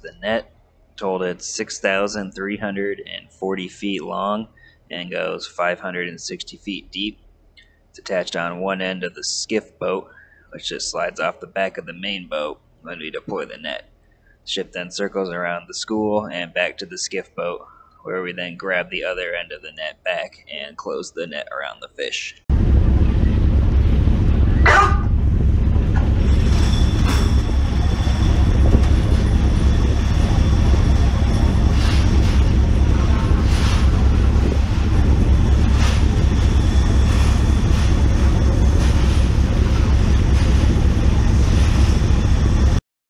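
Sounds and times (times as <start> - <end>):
ship engine rumble: 22.4 - 42.8
ship wake: 22.5 - 42.8
wind on microphone: 22.5 - 42.8.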